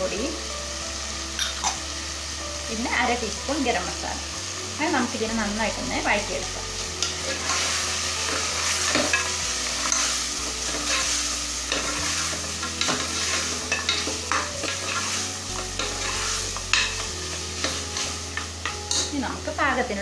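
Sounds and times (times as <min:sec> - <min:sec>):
meat and tomato sizzling in a pot: 0:00.0 - 0:20.0
wooden spatula scraping metal pot: 0:07.0 - 0:19.2.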